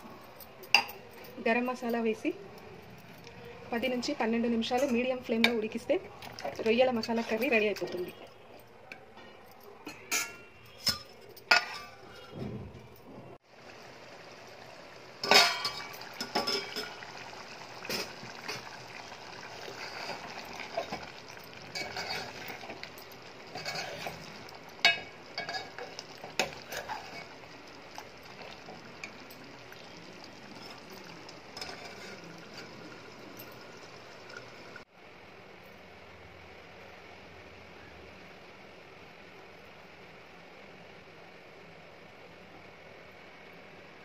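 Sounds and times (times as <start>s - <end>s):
spoon scraping metal pot: 4.6s - 8.4s, 9.9s - 12.4s, 19.6s - 22.9s, 23.5s - 27.4s, 31.6s - 32.9s
metal plate clinking on pot: 9.9s - 12.4s, 15.2s - 17.1s, 20.7s - 27.4s.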